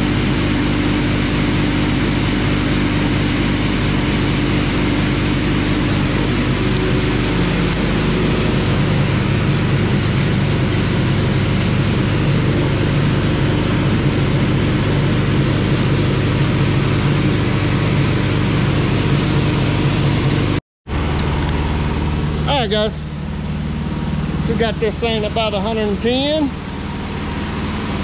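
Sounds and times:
engine idling: 0.0s - 28.0s
air hissing into tire: 10.9s - 11.9s.

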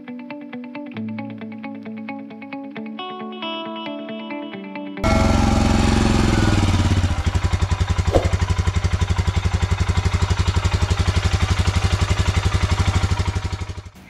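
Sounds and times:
motorcycle engine idling: 5.0s - 14.0s.

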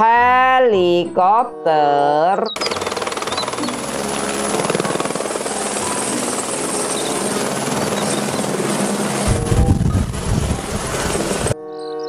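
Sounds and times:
helicopter rotor chopping: 2.4s - 11.6s
high whine: 2.5s - 11.6s
deep rumble: 9.2s - 11.6s.

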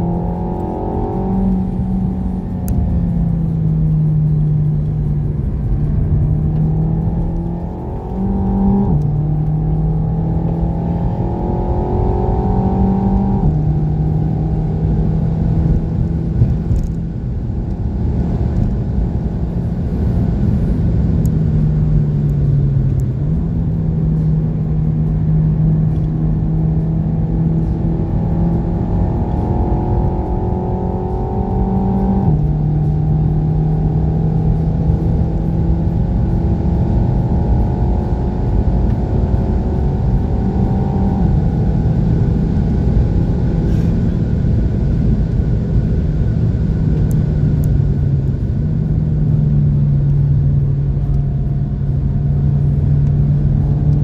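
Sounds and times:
car engine accelerating: 0.0s - 54.0s
road and tyre noise: 0.0s - 54.0s.

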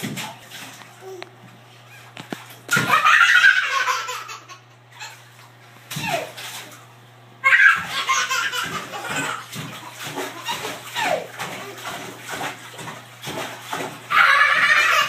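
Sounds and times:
water splashing in a bathtub: 0.0s - 15.0s
baby laughing: 2.7s - 5.2s, 7.4s - 9.5s, 10.1s - 11.9s, 14.1s - 15.0s.

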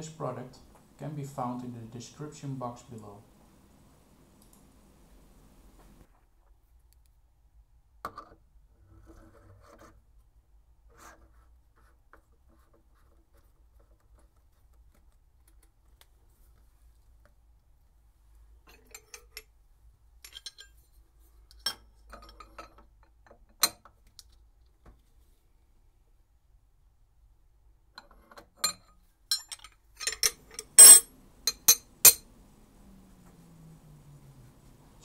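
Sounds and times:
metal tool sliding into collet: 29.4s - 32.2s
wrench clicking on metal: 29.4s - 32.2s.

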